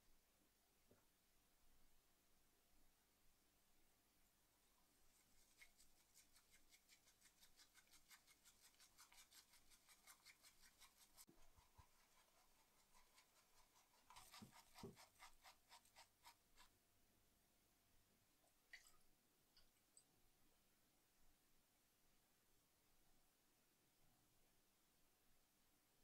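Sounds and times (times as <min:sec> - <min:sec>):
pencil sketching on paper: 0:05.4 - 0:16.7.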